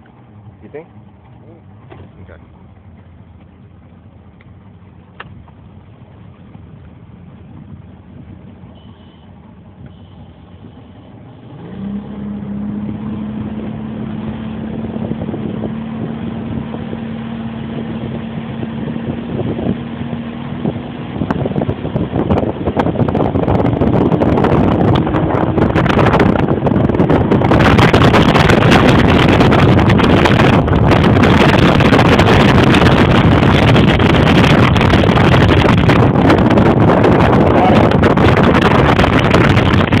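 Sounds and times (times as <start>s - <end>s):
outboard motor running hard: 0.0s - 40.0s
wind buffeting microphone: 11.5s - 40.0s.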